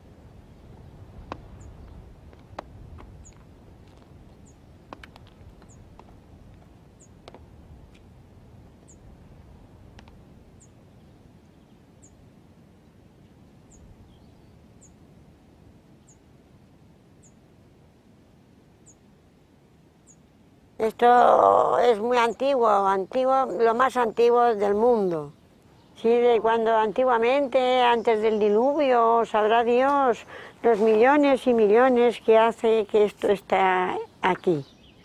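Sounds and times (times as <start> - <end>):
small bird chirping: 0.5 - 2.0, 3.0 - 3.5, 4.1 - 6.2, 33.1 - 35.0
cane tapping on rock: 1.2 - 4.1, 4.9 - 8.1
footsteps on rock: 1.2 - 8.1.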